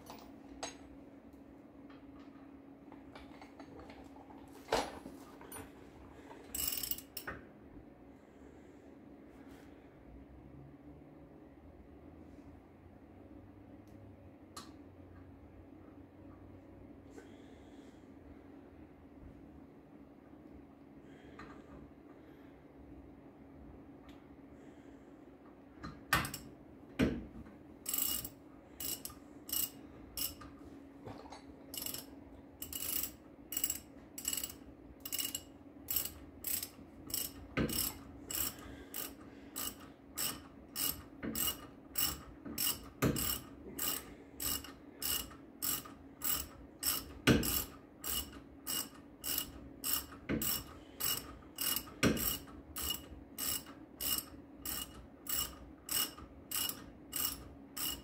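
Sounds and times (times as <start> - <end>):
hand ratchet clicking: 6.5 - 7.3, 27.9 - 30.4, 31.7 - 58.0.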